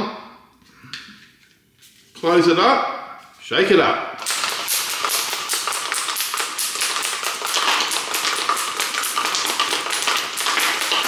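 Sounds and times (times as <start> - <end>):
shaker bottle being shaken: 4.2 - 11.0.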